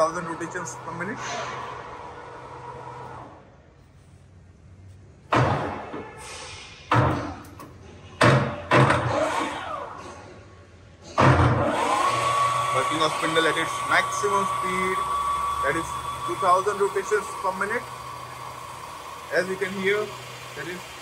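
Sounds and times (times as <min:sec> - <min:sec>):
lathe spindle running: 0:00.0 - 0:03.4, 0:11.7 - 0:21.0.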